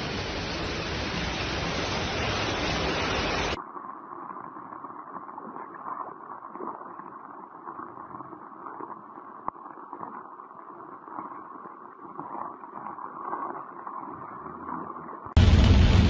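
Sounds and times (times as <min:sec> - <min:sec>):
heavy rain on water: 0:00.0 - 0:03.6, 0:15.4 - 0:16.0.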